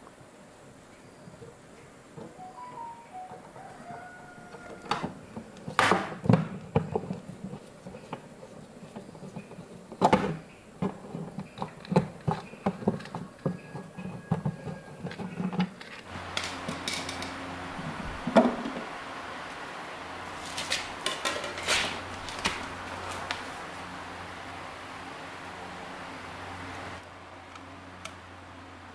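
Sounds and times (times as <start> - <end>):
low hum with hiss: 0.0 - 28.9
hard objects knocking and clattering: 4.8 - 17.4, 18.2 - 18.9, 20.5 - 22.6.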